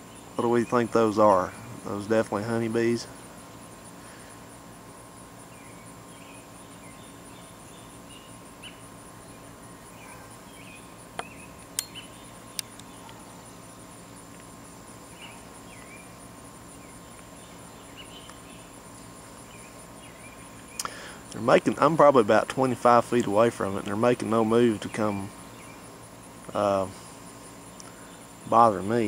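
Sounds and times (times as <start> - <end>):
insect trill: 0.0 - 29.0
sharp clicks: 11.2 - 13.2.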